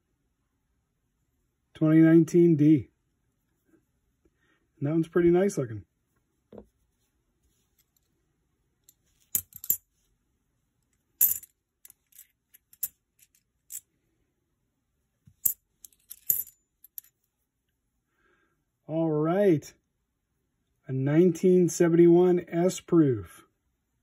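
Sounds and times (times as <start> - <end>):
coins clinking: 9.3 - 9.8, 11.2 - 13.8, 15.4 - 17.1.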